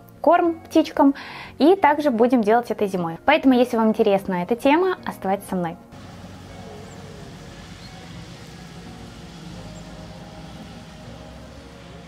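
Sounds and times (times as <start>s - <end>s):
distant city traffic hum: 5.9s - 12.0s
faint high chirps: 6.0s - 11.8s.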